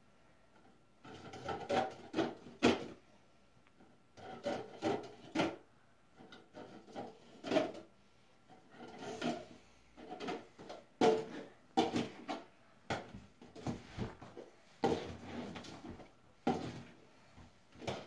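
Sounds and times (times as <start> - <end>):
plastic cups clacking: 1.0 - 3.0, 8.5 - 13.8.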